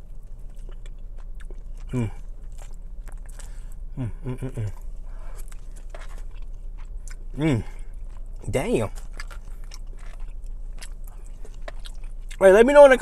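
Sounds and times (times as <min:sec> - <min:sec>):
man chewing food: 0:00.0 - 0:12.4
man humming in approval: 0:04.0 - 0:04.7.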